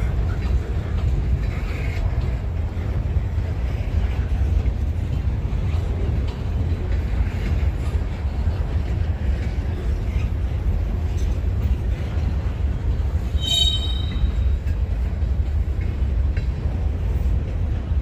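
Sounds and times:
train rumbling past: 0.0s - 18.0s
high wheel squeal: 13.3s - 14.7s.

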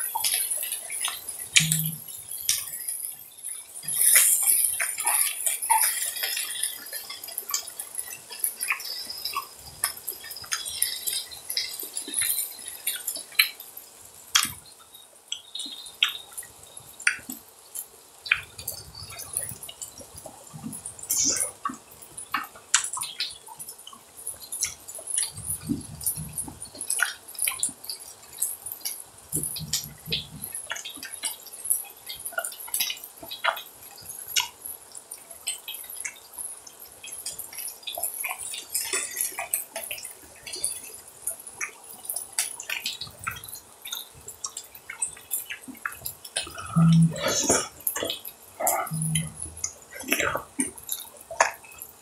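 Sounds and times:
fat crackling and popping: 0.0s - 52.0s
soft low sounds: 46.4s - 50.6s.

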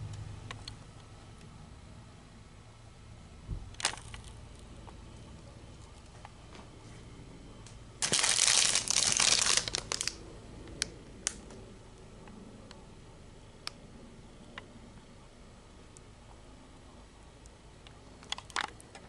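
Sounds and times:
plastic packaging crinkling: 3.8s - 4.6s, 8.0s - 10.2s.

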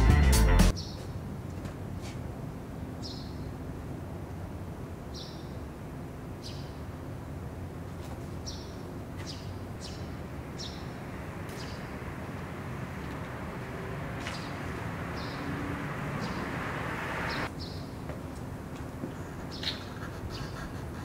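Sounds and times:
small birds chirping: 3.0s - 3.6s, 5.1s - 5.7s, 6.4s - 7.0s, 8.2s - 18.0s, 19.1s - 21.0s.

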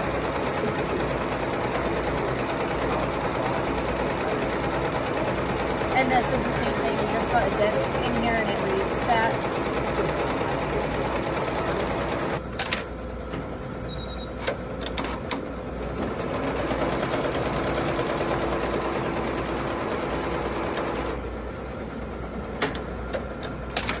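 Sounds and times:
embroidery machine needle chatter: 0.0s - 12.8s
sharp machine clicks: 12.0s - 12.9s, 22.6s - 24.0s.

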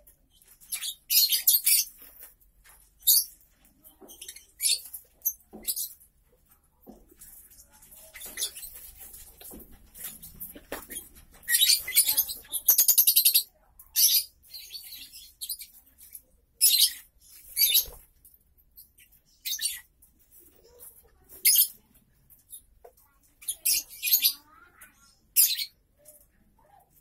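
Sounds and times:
lovebirds chirping: 0.0s - 26.8s.

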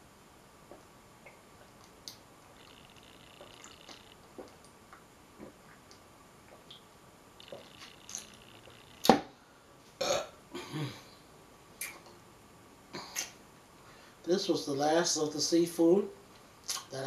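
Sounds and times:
person swallowing water: 3.3s - 6.8s
loud burp: 10.0s - 11.1s.

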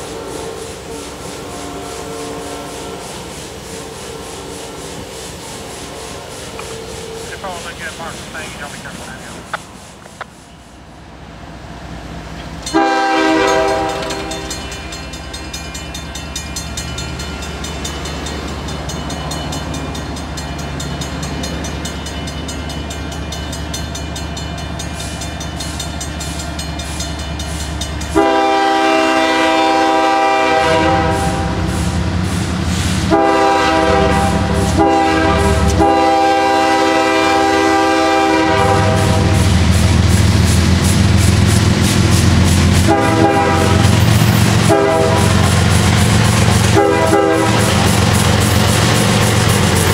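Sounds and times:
train air horn blasts: 0.0s - 9.4s, 12.7s - 15.0s, 28.0s - 32.0s, 32.7s - 39.6s, 42.7s - 48.2s
diesel locomotive rumble: 0.0s - 49.9s
crossing bell dinging: 12.6s - 28.5s.

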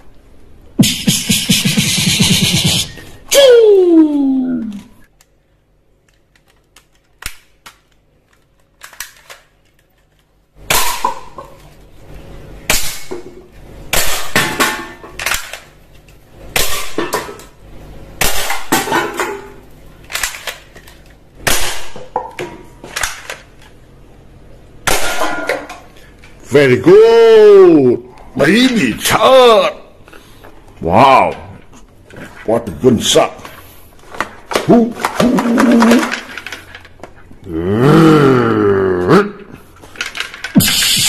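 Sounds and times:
cans and cups clattering: 34.5s - 36.6s.

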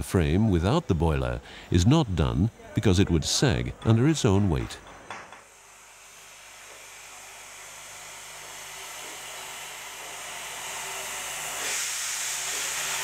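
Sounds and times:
steam locomotive hissing steam: 5.8s - 13.0s
brighter louder hiss: 11.6s - 13.0s.

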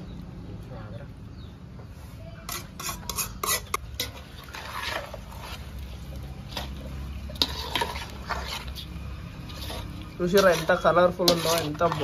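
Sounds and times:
spoon stirring thick pickle: 2.4s - 12.0s
metal ladle scraping metal pan: 2.5s - 12.0s
spoon clinking on metal basin: 9.6s - 12.0s.

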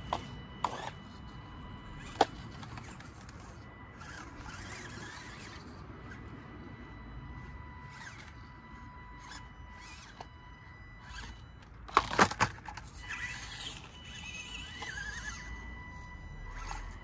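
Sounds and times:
toy truck clacking on rocks: 0.0s - 1.3s, 2.0s - 6.2s, 7.9s - 8.5s, 9.2s - 10.4s, 11.0s - 15.5s
electric motor whine: 0.0s - 17.0s.

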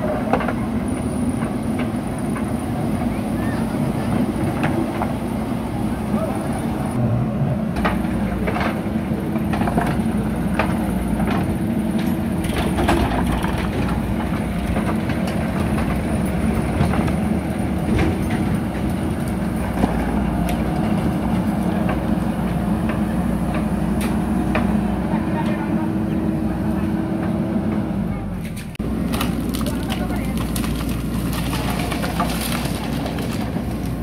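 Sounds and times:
diesel engine running under load: 0.0s - 34.0s
rocks clicking and knocking: 28.6s - 34.0s.

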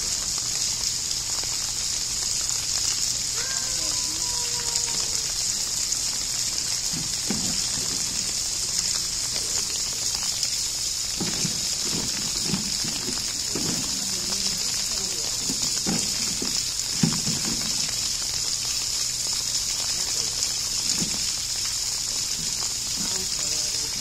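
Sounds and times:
rain falling: 0.0s - 24.0s.

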